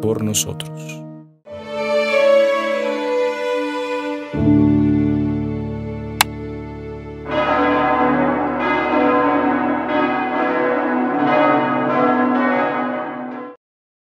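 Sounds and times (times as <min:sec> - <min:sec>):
bells ringing in a peal: 0:07.3 - 0:13.6.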